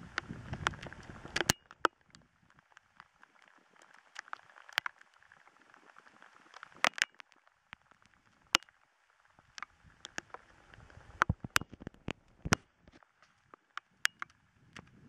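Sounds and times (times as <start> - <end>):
hailstones ticking on fabric: 0.2 - 10.5.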